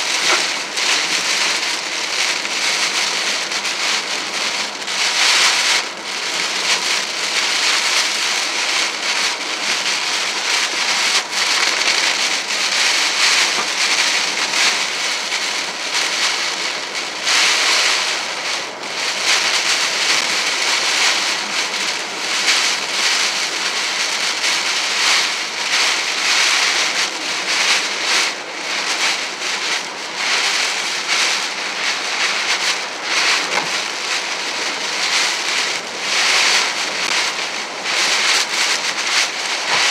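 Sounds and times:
heavy rain on car roof: 0.0 - 39.9
wind: 0.0 - 39.9
road noise: 31.8 - 35.9, 36.7 - 39.9.

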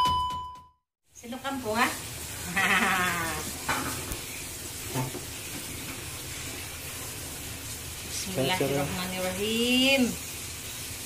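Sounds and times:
kettle steam hissing: 1.2 - 11.0
woman laughing: 2.4 - 3.4.

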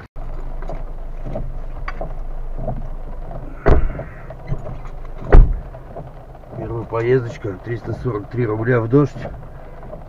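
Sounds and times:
car engine running: 0.0 - 10.0
rain: 0.2 - 10.0
windscreen wipers sweeping: 0.2 - 10.0
soft knocks: 0.5 - 6.6
loud thump: 0.6 - 6.1.

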